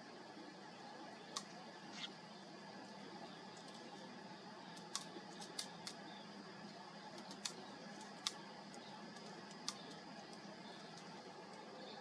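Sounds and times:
faint background hiss: 0.0s - 12.0s
sharp clicks: 4.7s - 6.0s, 7.1s - 11.7s.

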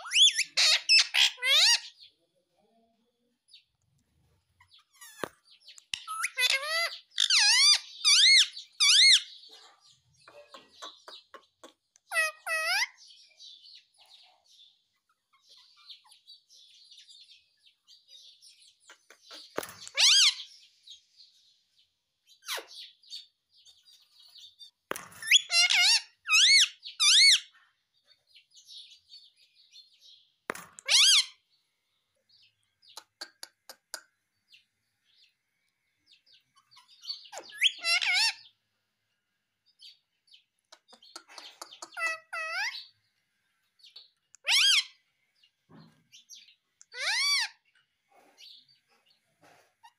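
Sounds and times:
parakeet shrill calls: 0.0s - 2.0s, 6.0s - 9.4s, 12.1s - 13.0s, 19.8s - 20.5s, 25.2s - 27.5s, 30.8s - 31.4s, 37.1s - 38.4s, 42.0s - 42.9s, 44.4s - 45.0s, 46.9s - 47.6s
parakeet soft chattering: 5.9s - 9.3s, 10.3s - 12.9s, 40.7s - 42.9s, 46.8s - 47.5s.

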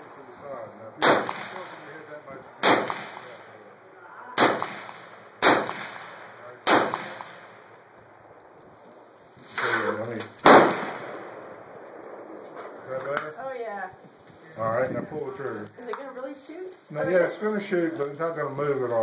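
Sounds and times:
suppressed rifle shots: 1.0s - 2.0s, 2.6s - 3.4s, 4.4s - 7.7s, 10.4s - 12.8s.

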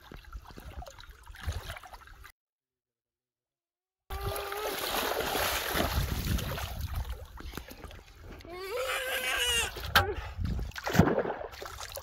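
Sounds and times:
fish thrashing in splashing water: 4.1s - 7.3s.

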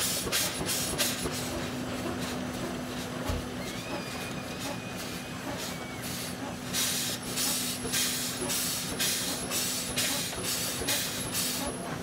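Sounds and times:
steam engine exhaust chuffing: 4.6s - 11.8s.

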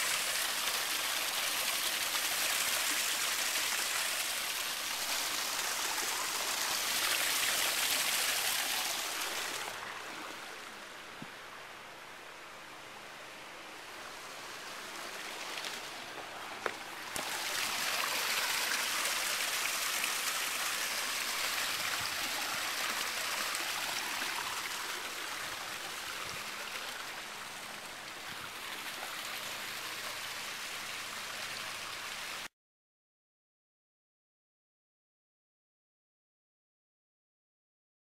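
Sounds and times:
waterfall rushing into pool: 0.0s - 11.2s, 13.8s - 32.5s.

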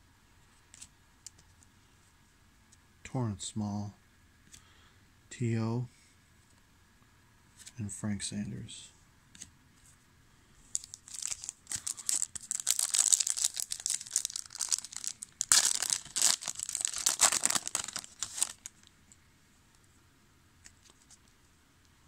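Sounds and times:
foil wrapper tearing and crinkling: 10.8s - 18.9s.

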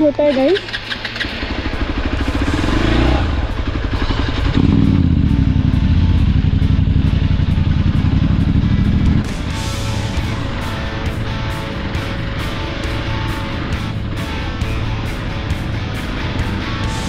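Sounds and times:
music: 0.0s - 0.5s, 2.2s - 17.0s
motorcycle engine revving: 0.0s - 17.0s.

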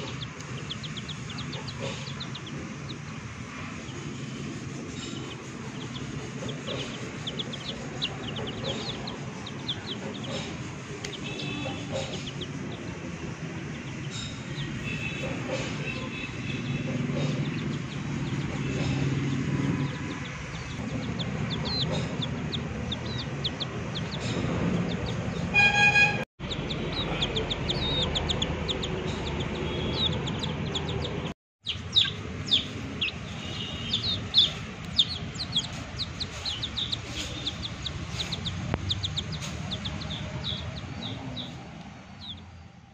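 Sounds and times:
chicks peeping: 0.0s - 25.6s, 26.4s - 42.7s
loud horn: 25.5s - 26.3s.

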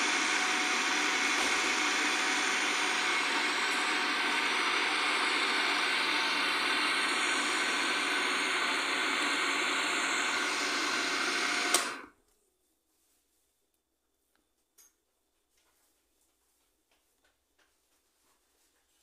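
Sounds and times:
food processor running: 0.0s - 12.1s.

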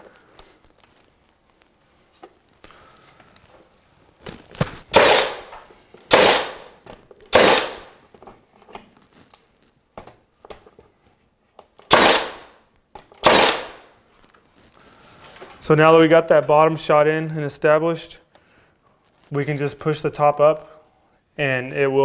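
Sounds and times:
nail gun firing: 4.9s - 6.7s, 7.3s - 8.0s, 11.9s - 12.6s, 13.2s - 13.9s.

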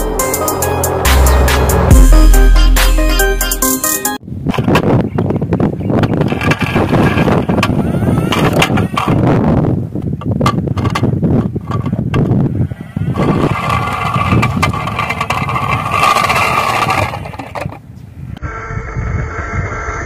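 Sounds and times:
steady whir: 0.0s - 3.6s, 6.1s - 9.5s
toy wheels rolling on asphalt: 5.9s - 18.0s.

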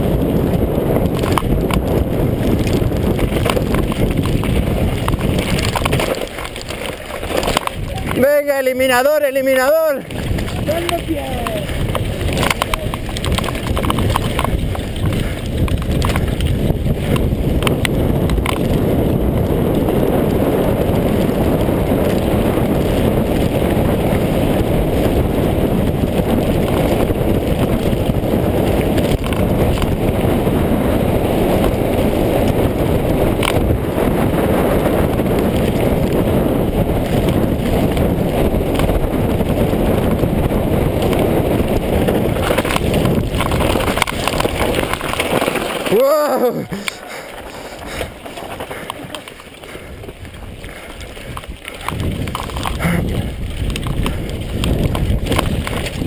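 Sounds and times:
bike clicks and rattles: 0.0s - 56.0s
tyres rumbling on gravel: 0.0s - 56.0s
wind on microphone: 0.0s - 56.0s.

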